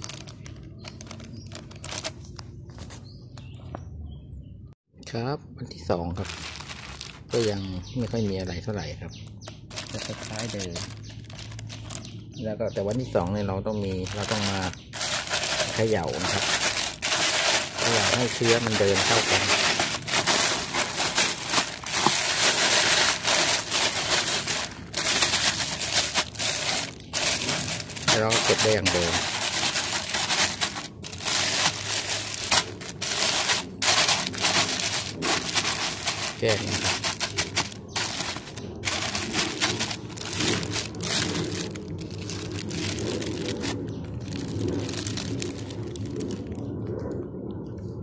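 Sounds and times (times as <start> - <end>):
plastic bags crinkling: 0.0 - 3.4, 6.1 - 8.0, 9.2 - 13.2, 13.8 - 46.6
rice grains rattling: 6.2 - 8.0, 9.6 - 12.3, 14.0 - 46.4.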